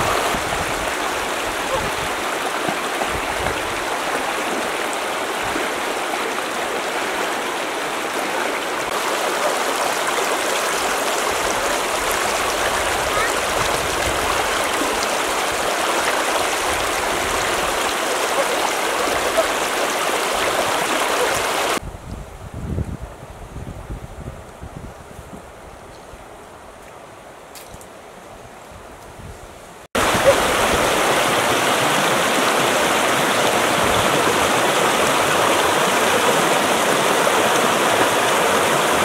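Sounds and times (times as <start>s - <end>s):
stream running over rocks: 0.0s - 21.8s, 29.9s - 39.0s.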